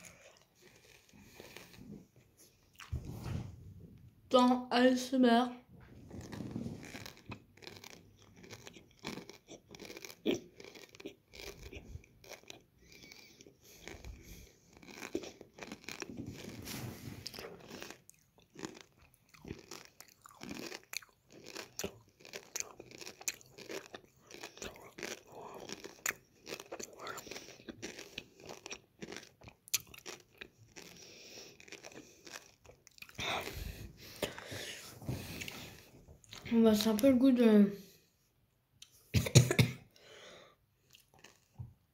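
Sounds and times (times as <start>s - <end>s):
wet chewing clicks: 6.3s - 16.6s, 17.2s - 34.4s.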